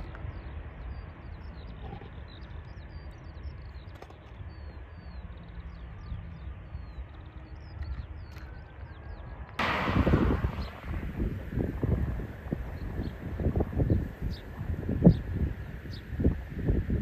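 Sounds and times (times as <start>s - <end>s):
small birds chirping: 0.0s - 9.3s, 10.4s - 17.0s
low rumble: 9.6s - 17.0s.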